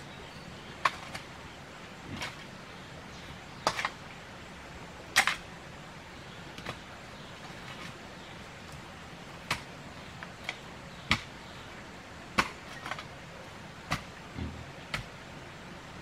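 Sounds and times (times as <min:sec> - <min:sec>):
hoe blade striking soil: 0:00.8 - 0:01.3, 0:09.4 - 0:09.8, 0:10.4 - 0:11.3, 0:12.3 - 0:13.1, 0:13.8 - 0:15.2.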